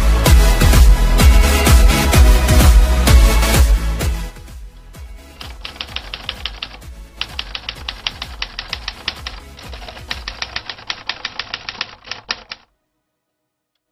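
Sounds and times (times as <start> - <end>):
typewriter typing: 5.4 - 12.6.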